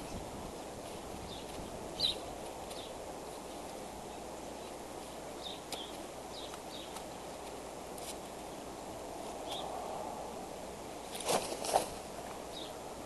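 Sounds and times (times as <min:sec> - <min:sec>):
low outdoor rushing noise: 0:00.0 - 0:13.0
feet clicking on sticks: 0:05.6 - 0:08.4.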